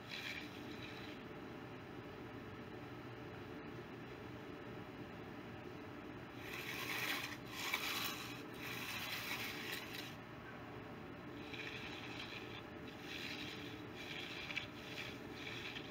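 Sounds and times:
tool scraping concrete: 0.0s - 1.2s, 6.4s - 10.2s, 11.4s - 15.9s.

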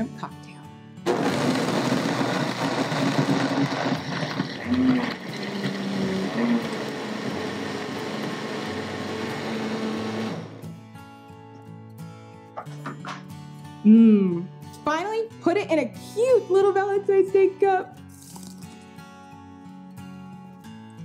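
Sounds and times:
blender crushing ice: 1.0s - 10.7s.

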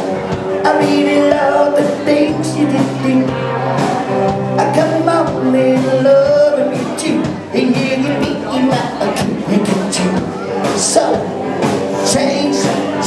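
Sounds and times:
drum kit beat: 0.0s - 13.0s
electric guitars: 0.0s - 13.0s
man singing: 0.0s - 13.0s.

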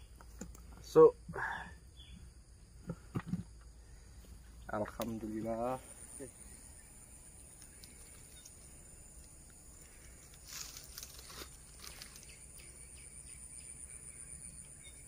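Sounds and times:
high insect drone: 0.0s - 15.0s
footsteps through grass: 10.3s - 12.4s.

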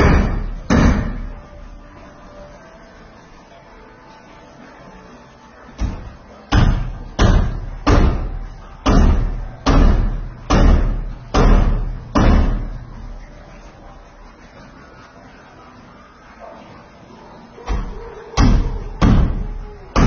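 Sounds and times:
heavy hammer strikes: 0.0s - 1.4s, 5.8s - 12.8s, 17.7s - 20.0s.

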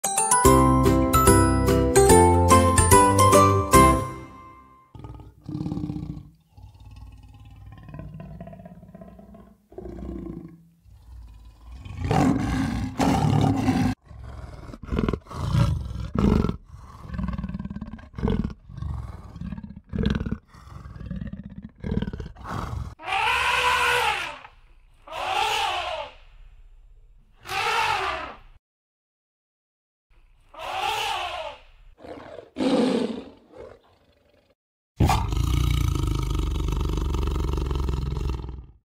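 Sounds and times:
jingle: 0.0s - 4.8s
elephant trumpeting: 23.0s - 26.2s, 27.4s - 28.4s, 30.6s - 33.8s.

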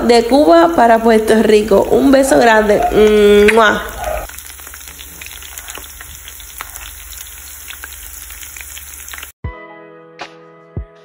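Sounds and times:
vegetables sizzling in hot oil: 0.0s - 9.4s
background music: 9.4s - 11.0s.

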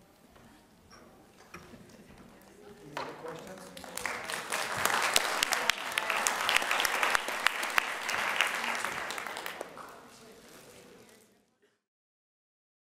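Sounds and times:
audience applauding: 3.2s - 9.9s.

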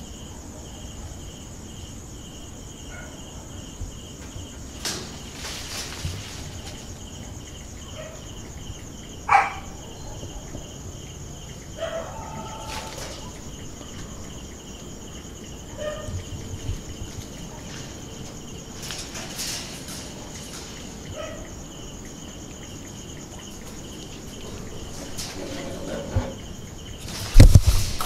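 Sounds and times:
crickets chirping: 0.0s - 28.0s
clatters and knocks: 4.1s - 8.3s, 16.0s - 28.0s.

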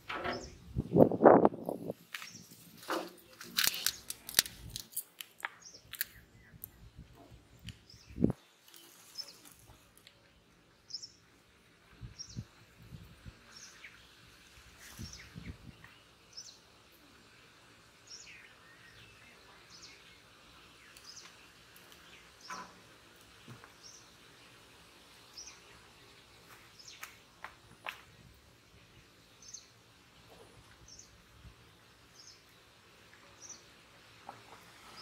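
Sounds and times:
faint outdoor ambience: 0.0s - 35.0s
birds chirping: 5.5s - 14.2s, 18.0s - 33.7s.

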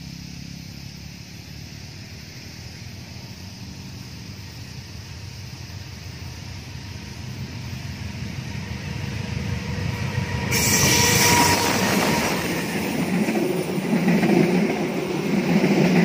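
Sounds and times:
diesel locomotive rumble: 0.0s - 16.0s
wheels hissing on rail: 0.0s - 16.0s
faint wheel squeal: 9.8s - 13.2s.

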